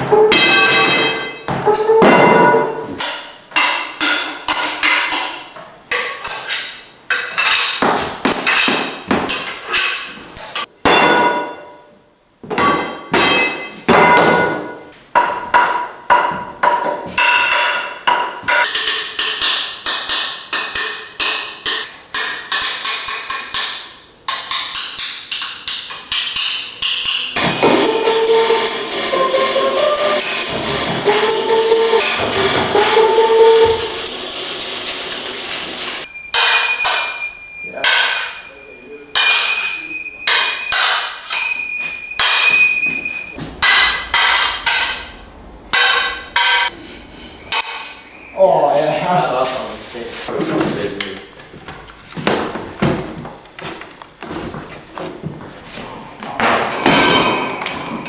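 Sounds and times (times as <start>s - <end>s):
struck wooden and metal percussion: 0.0s - 6.5s, 12.6s - 38.5s, 39.1s - 48.2s, 56.4s - 58.0s
continuous rattling: 27.4s - 36.1s.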